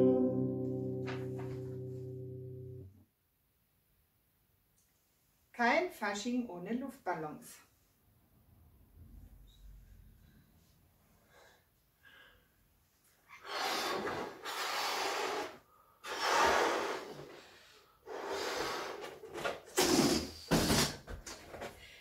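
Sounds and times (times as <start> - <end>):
breaths blowing up balloons: 13.3 - 21.1.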